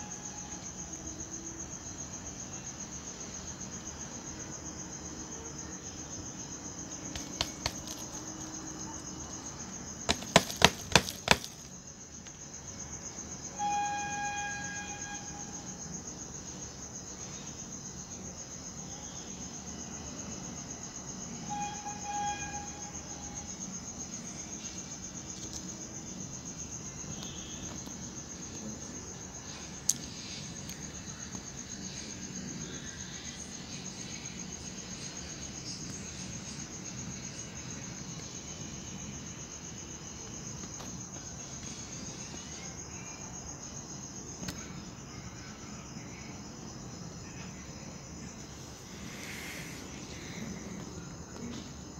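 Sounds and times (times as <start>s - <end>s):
high-pitched insect trilling: 5.4s - 17.9s, 21.2s - 48.0s.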